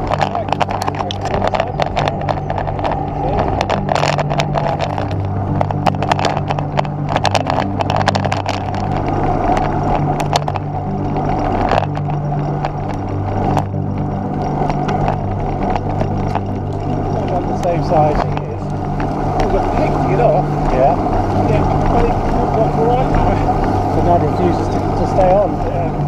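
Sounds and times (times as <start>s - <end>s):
bike knocks and rattles: 0.0s - 20.0s
road noise: 0.0s - 26.0s
wind rushing over microphone: 0.0s - 26.0s.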